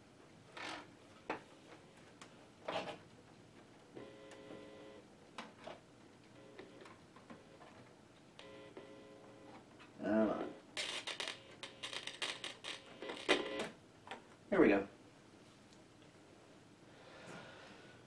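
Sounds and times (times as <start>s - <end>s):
faint buzzing tone: 3.9s - 5.1s, 6.3s - 7.7s, 8.4s - 13.8s.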